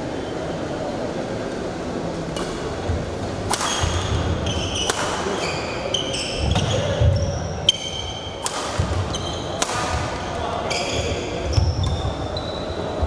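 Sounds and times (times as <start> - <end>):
racket hitting shuttlecock: 3.5 - 5.6, 8.4 - 10.3
shoes squeaking on court: 3.7 - 8.2, 8.8 - 9.6, 10.4 - 13.0.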